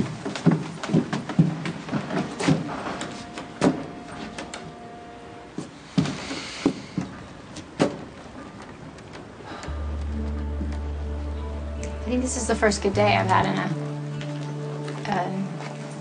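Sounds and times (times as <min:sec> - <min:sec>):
footsteps going up steps: 0:00.0 - 0:04.8, 0:05.5 - 0:11.2.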